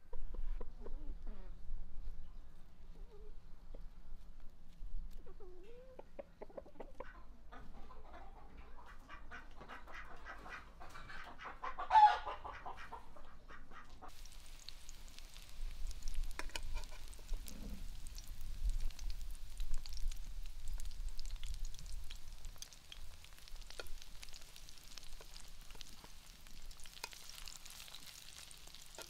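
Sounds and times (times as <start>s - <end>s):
chickens clucking: 5.1s - 14.6s, 16.2s - 18.2s
patties sizzling in hot oil: 14.0s - 29.0s.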